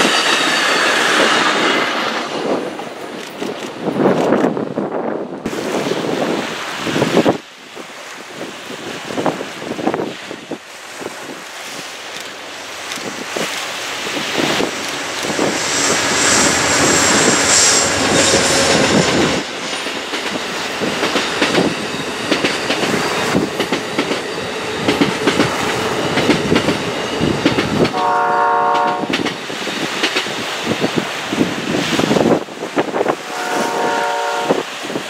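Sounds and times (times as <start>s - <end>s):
train wheels clicking over rail joints: 11.8s - 33.1s
high wheel squeals: 15.4s - 19.4s
train horn: 15.4s - 19.4s, 27.9s - 29.2s, 33.1s - 34.7s.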